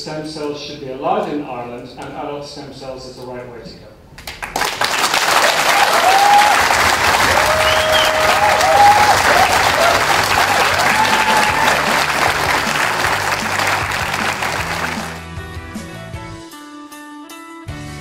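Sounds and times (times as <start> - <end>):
audience applauding: 4.3 - 15.3.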